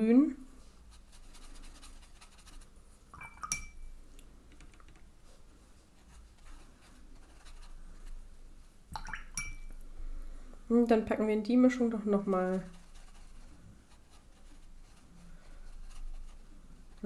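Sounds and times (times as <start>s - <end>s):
brush stroking on paper: 0.4s - 3.1s, 5.2s - 8.8s, 11.7s - 17.0s.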